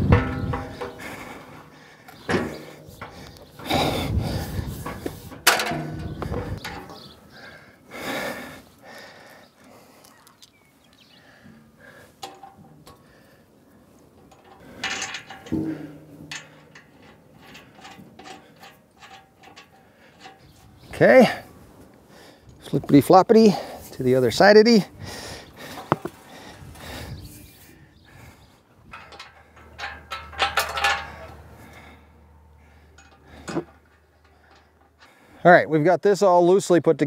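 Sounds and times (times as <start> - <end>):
steel parts clanking and scraping: 0.0 - 7.5, 11.4 - 21.7, 25.5 - 35.5.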